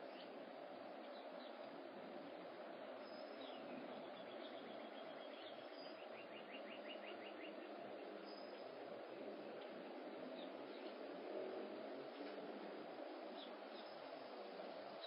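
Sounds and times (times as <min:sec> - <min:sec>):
steady background hiss: 0:00.0 - 0:15.0
small birds chirping: 0:03.0 - 0:08.8, 0:13.3 - 0:14.2.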